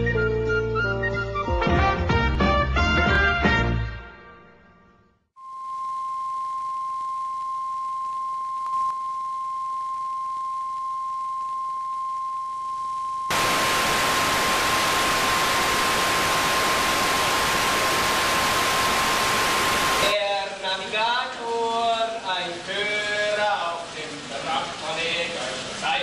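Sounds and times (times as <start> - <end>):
sine test tone: 5.4 - 20.1
tv static hiss: 5.4 - 26.0.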